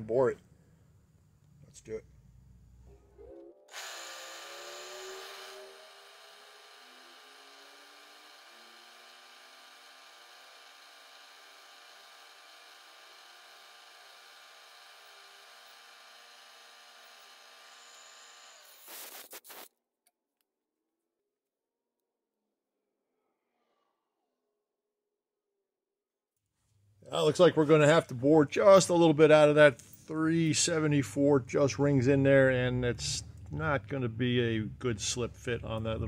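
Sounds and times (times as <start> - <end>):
milling machine spindle whine: 3.7 - 18.8.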